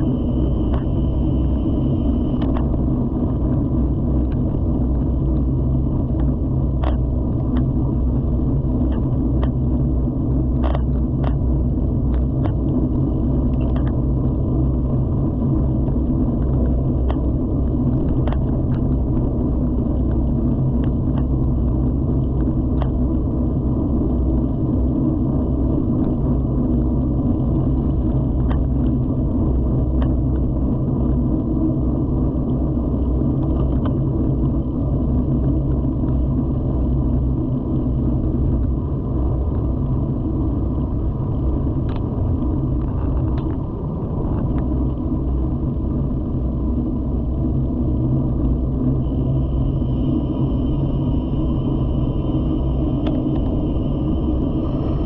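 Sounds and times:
tyre and wind noise: 0:00.0 - 0:49.2
mountain bike rumble: 0:00.0 - 0:55.0.

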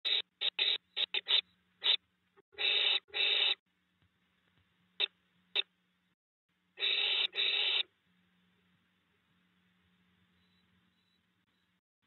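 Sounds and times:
barn owls hissing: 0:02.6 - 0:03.6, 0:06.8 - 0:07.9.

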